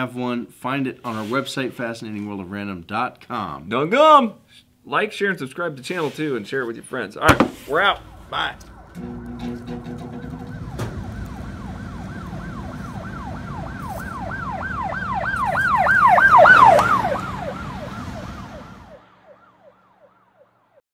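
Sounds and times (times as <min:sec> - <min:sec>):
low traffic rumble: 0:07.3 - 0:19.9
emergency siren yelping: 0:07.6 - 0:20.8.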